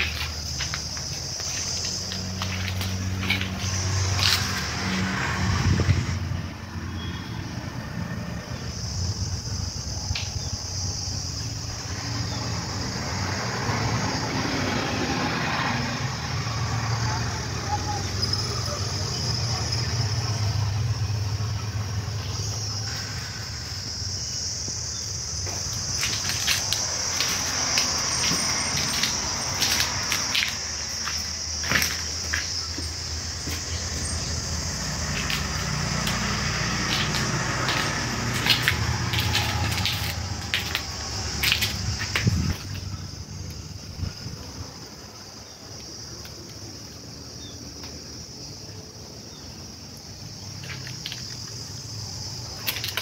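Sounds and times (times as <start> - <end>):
footsteps on debris: 0.0 - 5.1, 24.7 - 42.9, 52.5 - 53.0
high-pitched insect chirring: 0.0 - 5.2, 21.6 - 49.5.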